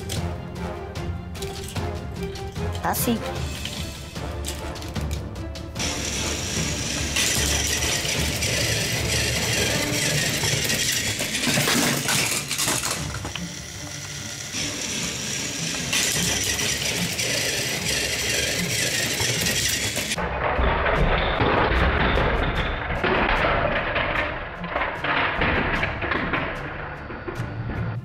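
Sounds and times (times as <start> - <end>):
toy train motors whirring: 1.4 - 1.8, 2.4 - 20.2.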